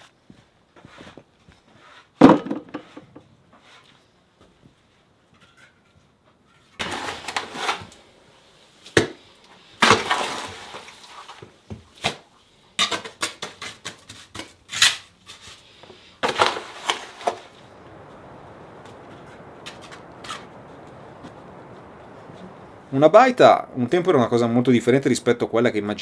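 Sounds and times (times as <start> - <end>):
stones clattering into plastic bucket: 2.2 - 3.1, 9.8 - 11.4
trowel scraping rubble: 6.6 - 8.0, 9.8 - 11.4, 12.8 - 17.6
steady hiss: 15.5 - 25.4.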